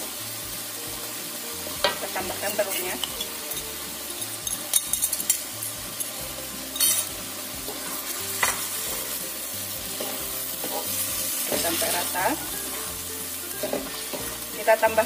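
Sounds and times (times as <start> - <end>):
vegetables sizzling in a wok: 0.0 - 15.0
wooden spatula scraping pan: 9.8 - 13.0, 13.6 - 14.5.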